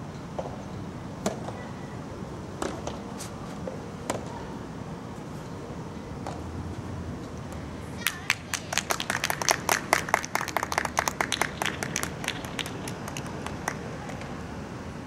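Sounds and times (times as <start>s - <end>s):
spectators clapping: 8.0s - 14.3s.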